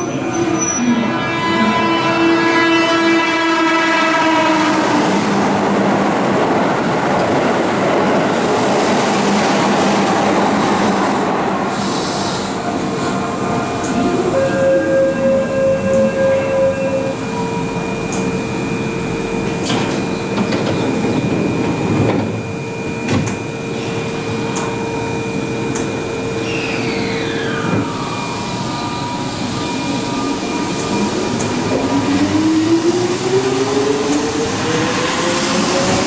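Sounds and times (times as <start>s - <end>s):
electric train humming: 0.0s - 36.0s
train doors shutting: 19.4s - 36.0s.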